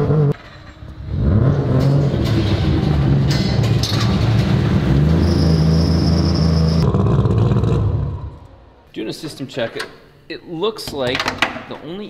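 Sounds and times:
shop door rattling: 0.4 - 6.8.

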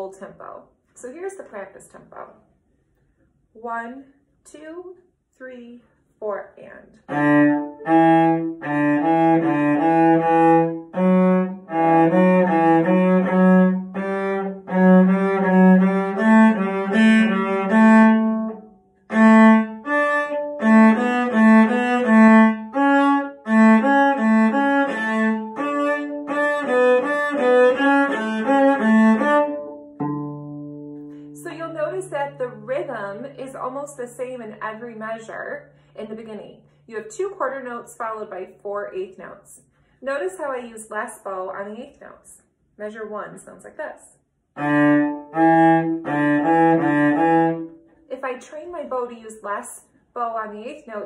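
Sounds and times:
cello playing a lively tune: 7.1 - 33.2, 44.6 - 47.7.

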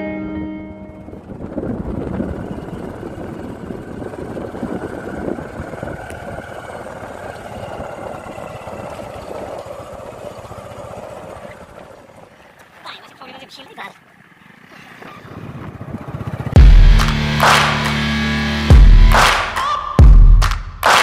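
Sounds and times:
gravel road rumble: 0.0 - 19.0
motorcycle engine running: 0.7 - 12.2, 14.5 - 19.4.

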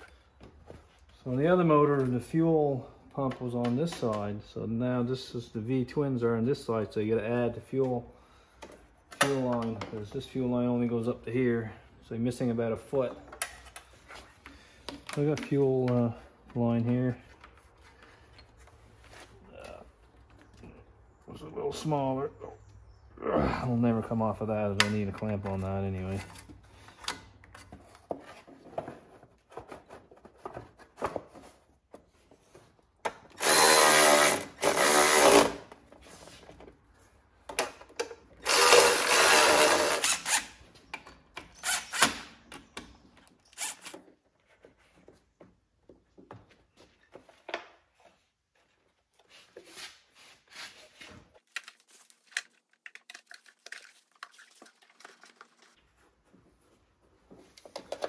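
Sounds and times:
cordless drill running: 33.4 - 35.5, 38.4 - 40.3.

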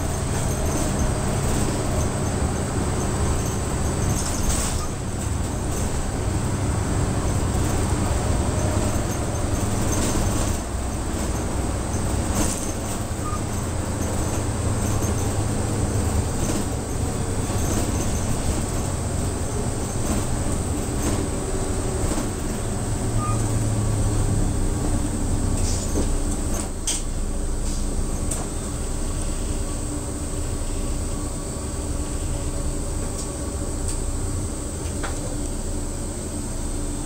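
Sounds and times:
bus engine and road hum: 0.0 - 37.0
interior clicks and rattles: 7.2 - 21.4.

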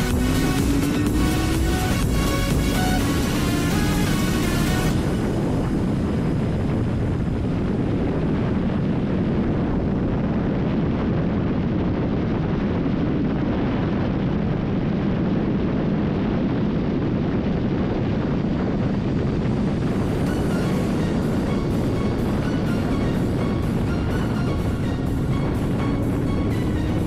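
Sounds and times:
motorcycle engine: 0.0 - 5.8
wind rush over microphone: 0.0 - 27.0.

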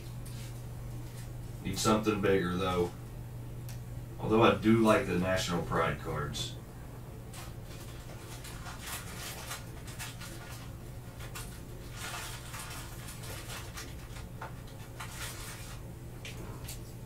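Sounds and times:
steady low hum: 0.0 - 17.0
plastic sleeves crinkling and sliding: 7.3 - 17.0.

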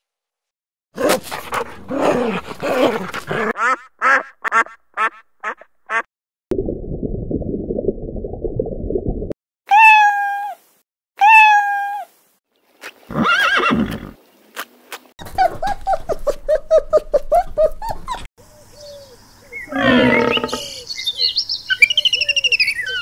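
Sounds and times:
drawn-out pitched animal calls: 19.7 - 20.9
long quavering animal call: 19.7 - 20.9.

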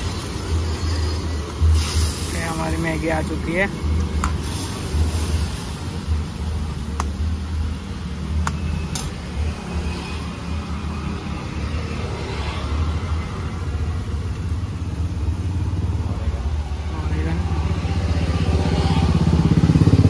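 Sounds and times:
low road traffic rumble: 0.0 - 20.0
spatula striking cooking pan: 4.2 - 4.5, 6.9 - 7.3.

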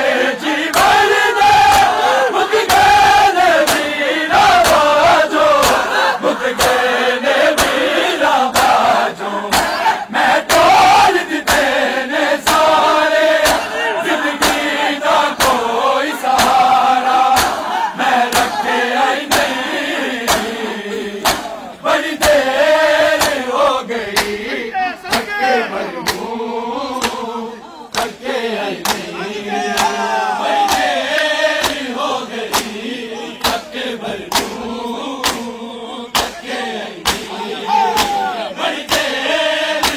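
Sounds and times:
crowd of men chanting: 0.0 - 39.9
hands slapping chests: 0.6 - 1.0, 1.6 - 2.0, 3.6 - 6.0, 6.6 - 6.9, 7.5 - 10.7, 11.4 - 11.8, 12.4 - 13.8, 14.4 - 18.6, 19.2 - 20.6, 21.2 - 21.6, 22.2 - 23.5, 24.1 - 24.4, 25.1 - 25.4, 26.0 - 26.3, 26.9 - 27.3, 27.9 - 29.1, 29.7 - 32.8, 33.4 - 39.9.

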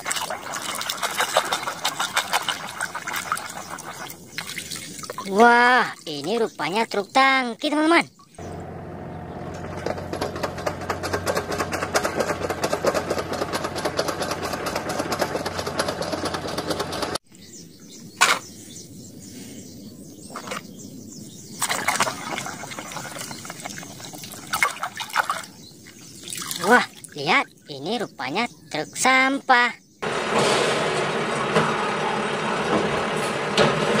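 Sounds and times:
hand scrubbing in water: 0.0 - 6.5, 26.2 - 27.2
water sloshing in plastic basin: 0.0 - 6.5, 21.6 - 25.6, 26.2 - 27.2
diesel truck engine running: 8.4 - 17.2, 30.0 - 34.0.

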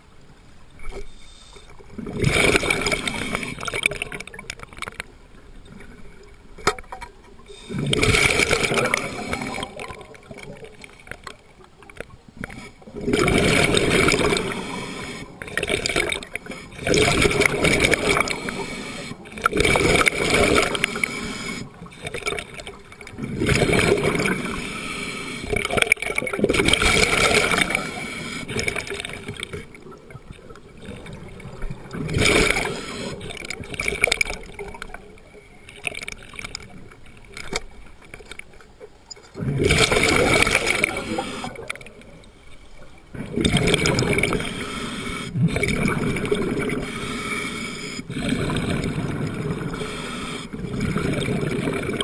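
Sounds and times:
exhaled bubbles rushing: 1.9 - 5.0, 7.4 - 21.1, 21.7 - 24.7, 25.5 - 37.4, 39.3 - 42.3, 43.1 - 44.6, 45.3 - 47.0, 48.0 - 49.9, 50.5 - 52.0
regulator inhalations: 14.2 - 15.5, 18.1 - 19.4, 20.5 - 22.2, 24.4 - 25.6, 32.4 - 33.4, 40.4 - 41.8, 44.3 - 46.0, 46.7 - 48.8, 49.6 - 50.6.

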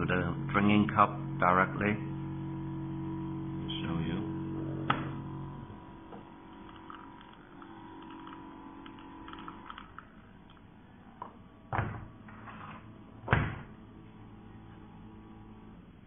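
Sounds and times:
espresso machine hum: 0.0 - 16.0.

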